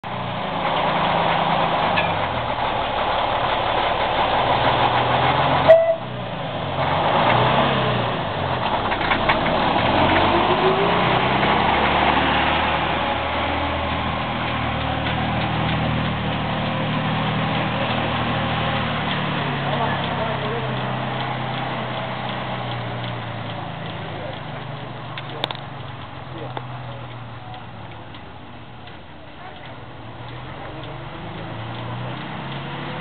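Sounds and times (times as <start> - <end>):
diesel locomotive engine running: 0.0 - 33.0.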